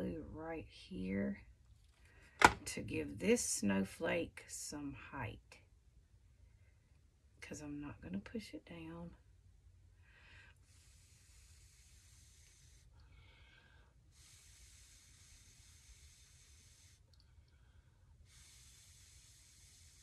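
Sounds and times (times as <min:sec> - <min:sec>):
person breathing: 0:10.0 - 0:20.0.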